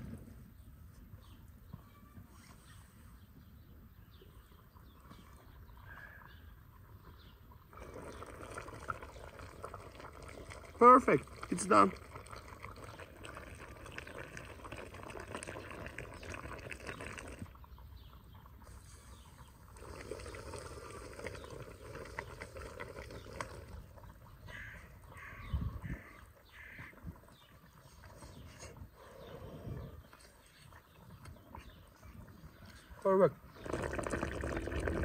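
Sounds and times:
stew bubbling in a pot: 6.6s - 35.0s.

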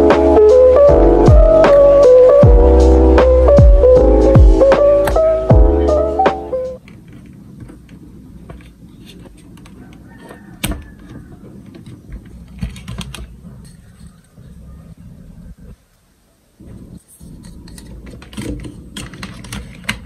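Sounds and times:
cables rustling: 6.7s - 16.0s, 16.6s - 20.0s.

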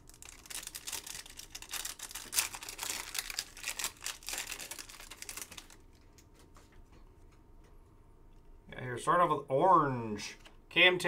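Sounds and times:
foil wrappers crinkling: 0.0s - 6.6s.

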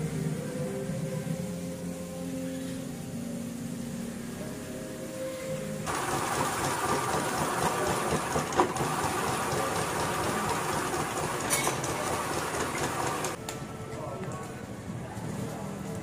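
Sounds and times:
ice-shaving machine rasping: 5.9s - 13.4s.

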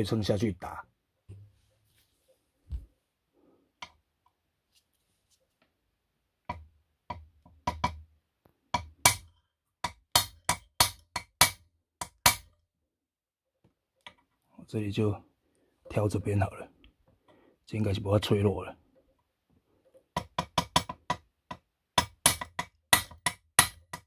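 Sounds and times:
hammer tapping steel punch: 6.5s - 8.0s, 8.8s - 12.6s, 20.1s - 24.0s.

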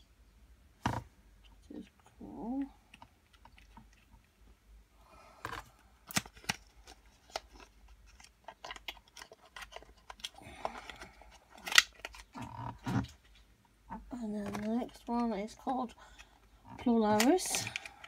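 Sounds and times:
packaging rustling: 5.5s - 13.4s.

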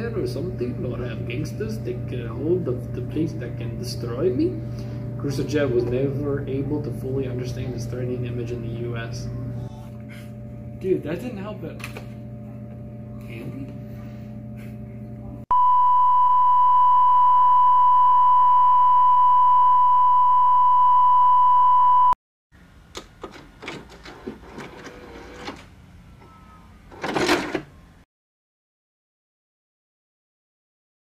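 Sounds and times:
electronic beep tone: 15.5s - 22.2s.

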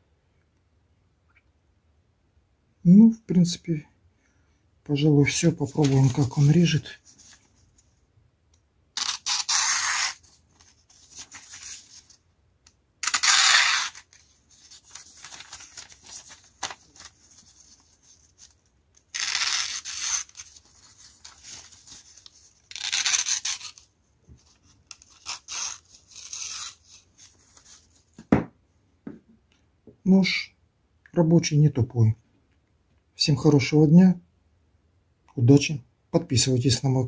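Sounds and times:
knife slicing paper: 9.0s - 10.3s, 13.0s - 17.2s, 19.1s - 23.9s.

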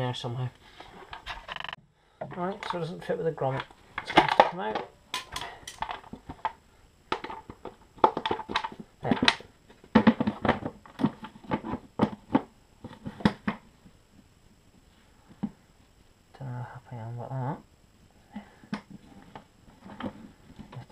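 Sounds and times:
plastic cover clicking and rattling: 3.6s - 13.6s.

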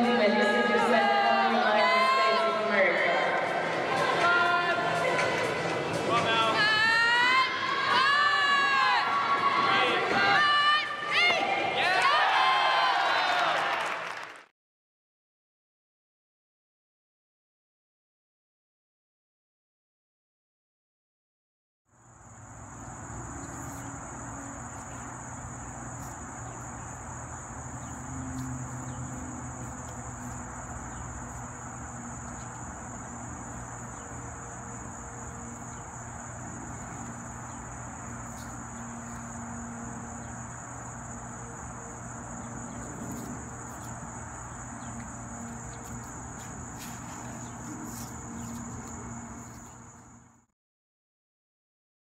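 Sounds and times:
distant traffic hum: 21.9s - 50.4s
insect chorus shrilling: 22.0s - 50.1s.

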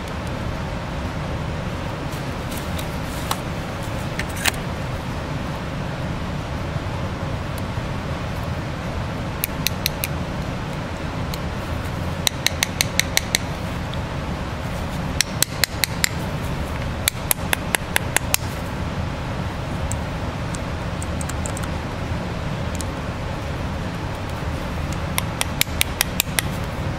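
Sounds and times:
screwdriver tapping on metal: 12.2s - 13.5s.

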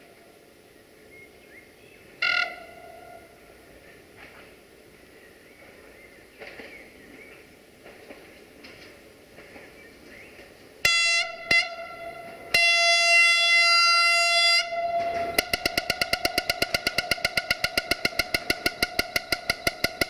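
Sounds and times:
train horn: 2.2s - 3.6s, 10.8s - 20.0s
rapid pulsing tone: 10.9s - 20.0s.

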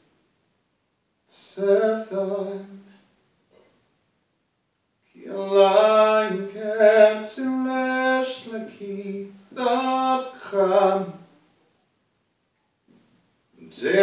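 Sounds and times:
man singing long held notes: 5.2s - 11.2s, 13.6s - 14.0s.

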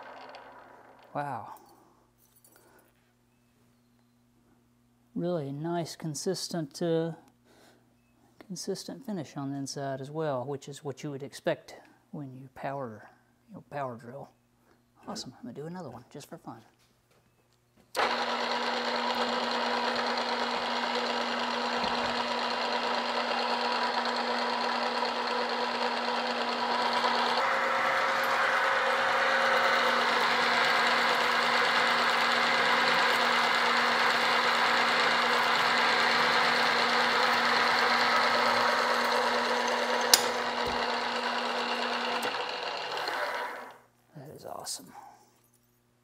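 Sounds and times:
drill press drilling metal: 0.0s - 1.1s, 18.0s - 43.8s.

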